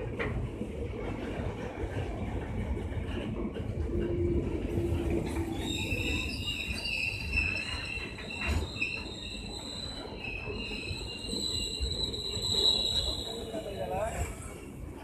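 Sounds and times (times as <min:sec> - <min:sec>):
train wheels squealing: 0:04.8 - 0:14.6.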